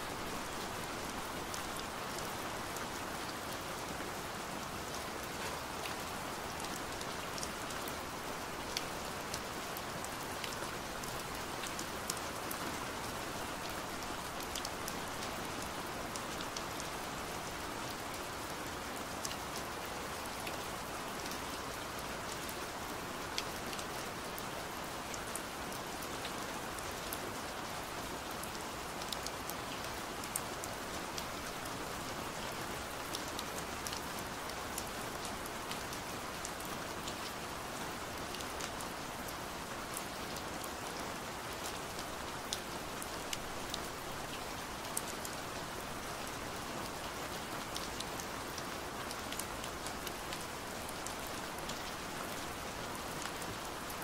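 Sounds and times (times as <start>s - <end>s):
rain on a window: 0.0s - 54.0s.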